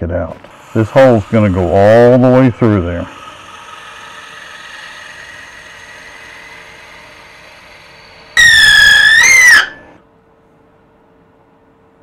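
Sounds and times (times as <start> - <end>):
wood lathe running: 0.4 - 8.4
drill bit squealing: 0.4 - 10.0.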